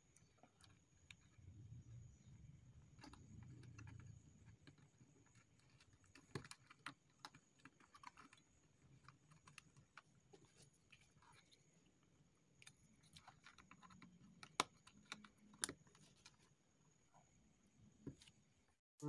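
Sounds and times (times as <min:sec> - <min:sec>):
soft low rumble: 0:01.1 - 0:05.3
small clicks and taps: 0:03.0 - 0:11.5, 0:12.6 - 0:16.5.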